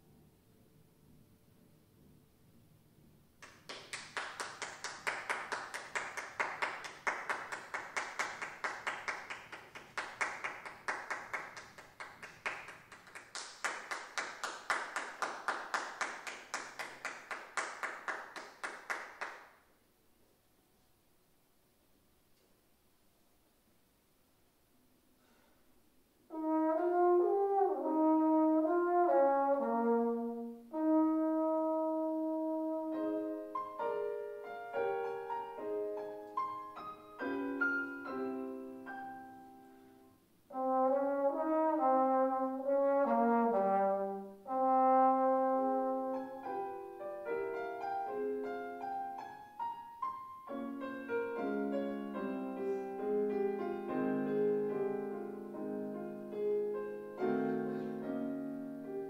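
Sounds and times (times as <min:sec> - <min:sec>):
trombone playing a melody: 0:26.3 - 0:33.3, 0:40.5 - 0:46.6
piano accompaniment: 0:26.3 - 0:59.0.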